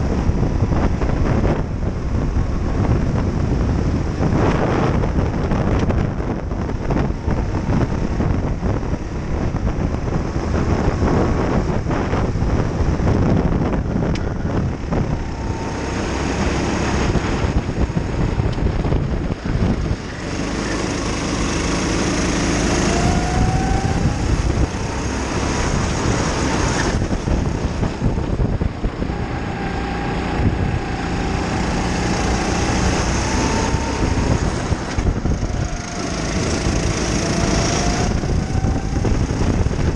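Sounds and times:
wind on microphone: 0:00.0 - 0:39.9
kart engine revving: 0:13.8 - 0:39.9.

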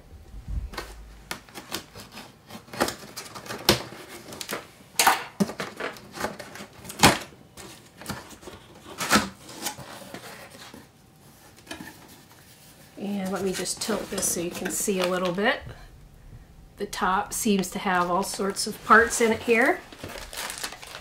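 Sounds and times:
cardboard flaps opening: 0:18.2 - 0:21.0
packing tape ripping: 0:19.6 - 0:21.0.

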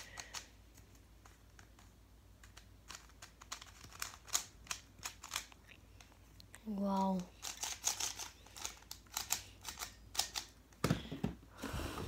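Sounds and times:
plastic puzzle cube clicking: 0:00.0 - 0:05.6, 0:07.2 - 0:10.6.

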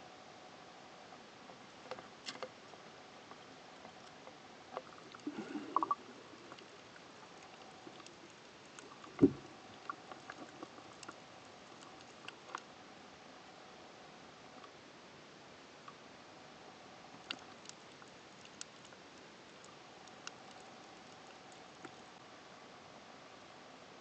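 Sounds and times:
faint water hiss: 0:00.0 - 0:24.0
small clicks and knocks: 0:01.9 - 0:02.6
thump: 0:09.2 - 0:09.4.

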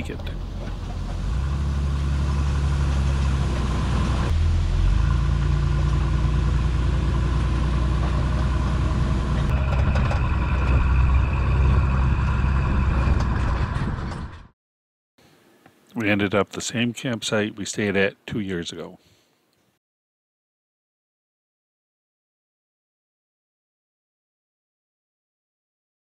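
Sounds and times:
car engine low drone: 0:00.0 - 0:14.5.

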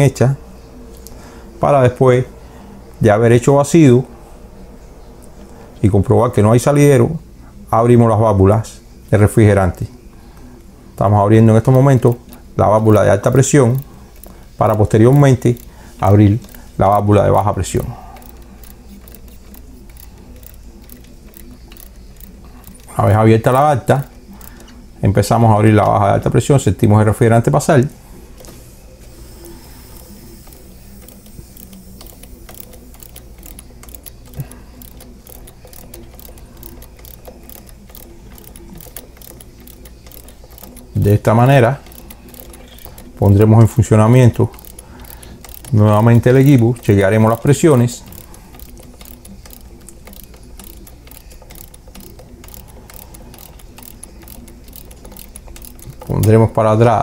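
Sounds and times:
steady low hum: 0:00.0 - 0:57.0
ratcheting wrench clicking: 0:11.5 - 0:26.7, 0:29.1 - 0:57.0.

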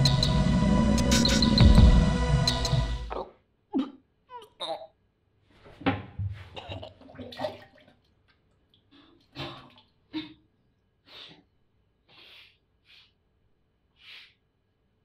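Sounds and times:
woman retching and gagging: 0:03.1 - 0:05.0, 0:09.2 - 0:10.5.

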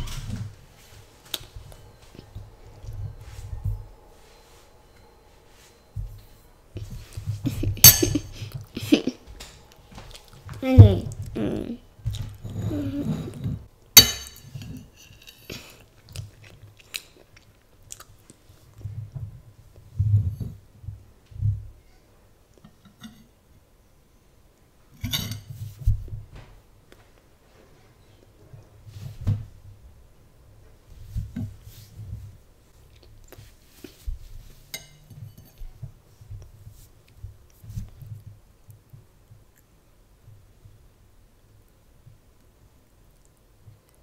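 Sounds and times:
soft chewing: 0:00.8 - 0:11.4, 0:14.5 - 0:20.6, 0:31.4 - 0:39.8, 0:41.6 - 0:44.0
metal spoon clinking ceramic bowl: 0:07.8 - 0:08.3, 0:14.0 - 0:15.3
spoon clicks and scrapes: 0:14.0 - 0:15.5.

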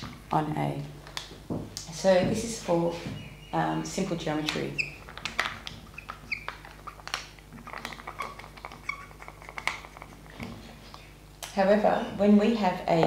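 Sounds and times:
marker squeaking on glass: 0:04.4 - 0:10.5.

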